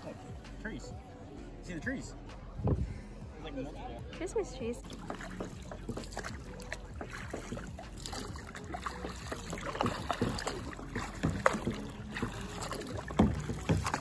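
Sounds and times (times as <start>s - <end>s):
paddle splashing in water: 4.8s - 14.0s.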